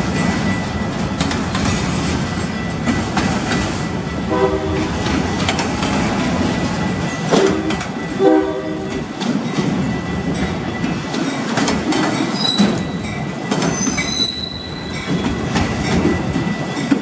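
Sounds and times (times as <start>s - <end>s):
steel wheels rumbling on rail: 0.0s - 17.0s
wheels clicking over rail joints: 5.0s - 17.0s.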